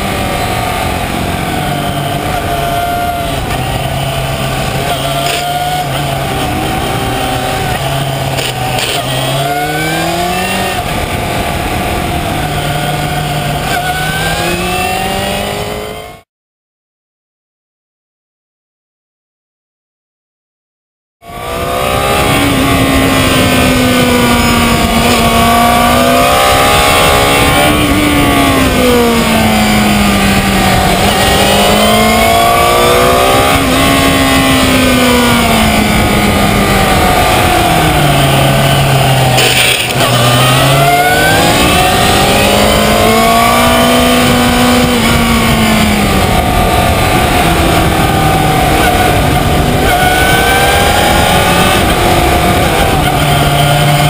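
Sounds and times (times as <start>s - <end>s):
motorcycle engine accelerating: 0.0s - 16.2s, 21.2s - 54.0s
wind and road noise: 0.0s - 16.2s, 21.2s - 54.0s.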